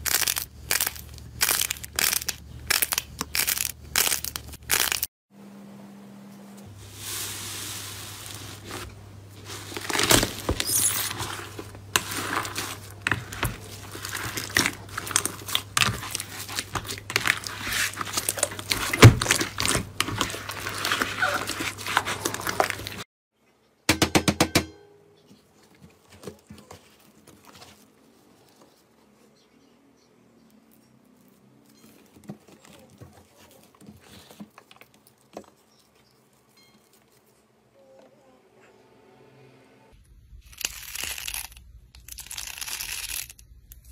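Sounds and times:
faint crunching of slime: 0.0 - 5.1, 8.1 - 23.0, 30.4 - 37.8
slime squelching and crackling: 0.0 - 5.1, 7.6 - 23.0.

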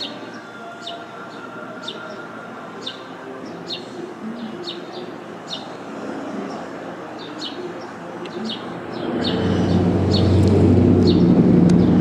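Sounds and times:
small birds chirping: 0.0 - 12.0
loud low rumbling: 9.0 - 12.0.

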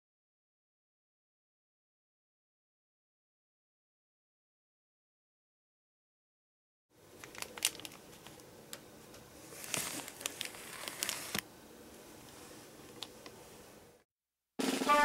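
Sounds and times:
plastic bag crinkling: 7.1 - 8.5, 9.4 - 11.4.

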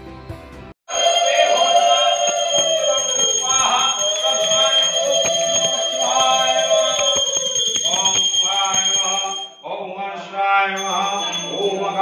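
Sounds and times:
music: 0.0 - 0.8
devotional chanting: 0.9 - 12.0.

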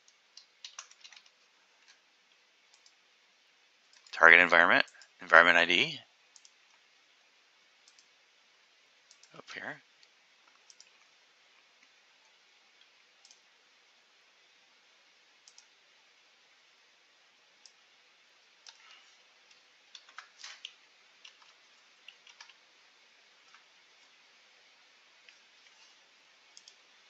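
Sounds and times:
computer mouse clicks: 0.0 - 3.0, 3.9 - 4.1, 6.3 - 6.8, 7.8 - 8.1, 9.0 - 9.4, 10.0 - 11.1, 12.8 - 13.5, 15.4 - 15.8, 17.6 - 17.8, 18.6 - 22.6, 23.4 - 24.2, 25.2 - 26.8.

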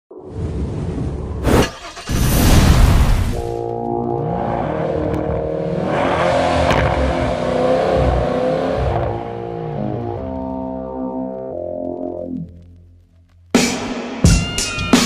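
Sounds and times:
car engine revving: 1.4 - 11.1
music with brass chords: 3.6 - 12.5.

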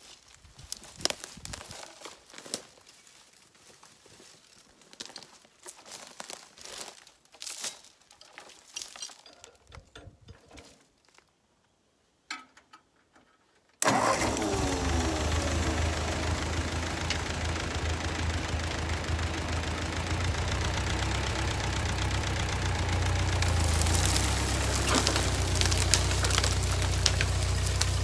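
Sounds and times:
dry brush crackling: 0.0 - 7.2, 22.1 - 28.0
chain links clinking: 7.3 - 10.9
tractor engine running: 13.8 - 28.0.

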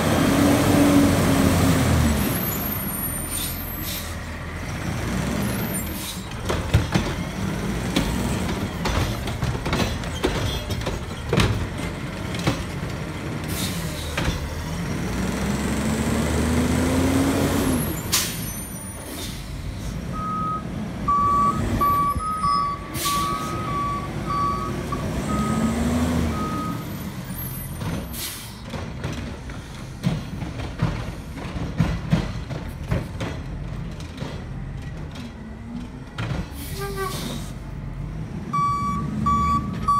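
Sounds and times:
garbage truck engine revving: 0.0 - 3.1, 11.1 - 18.4, 20.0 - 28.1
two-pitch short beeps: 20.2 - 25.6.

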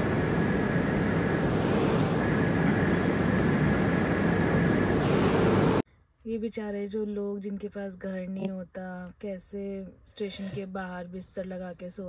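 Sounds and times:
train rumble: 0.0 - 5.8.

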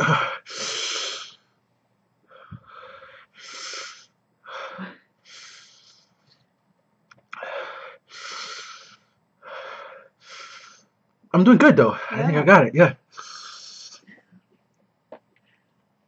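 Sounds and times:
man breathing hard through mouth: 0.0 - 1.4, 2.3 - 6.2, 7.4 - 10.9, 13.1 - 14.2.

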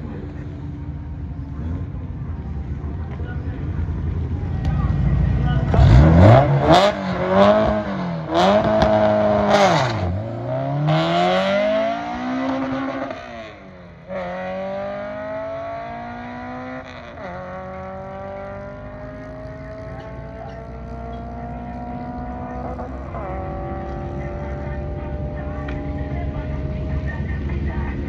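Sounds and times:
racing car accelerating hard: 5.6 - 27.0.

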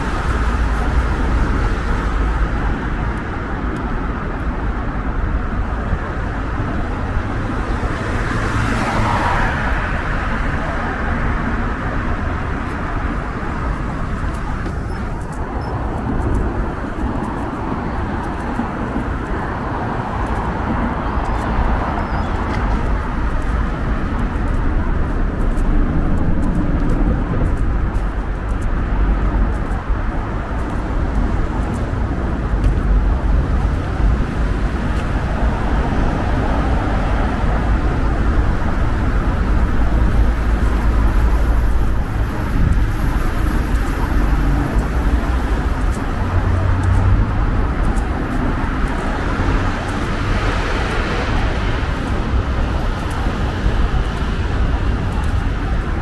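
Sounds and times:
road traffic rumble: 0.0 - 56.0.

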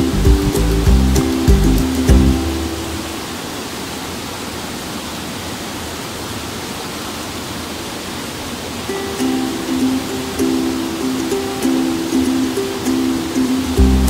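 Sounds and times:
background music: 0.0 - 3.1
waterfall rushing over rocks: 0.0 - 14.0.

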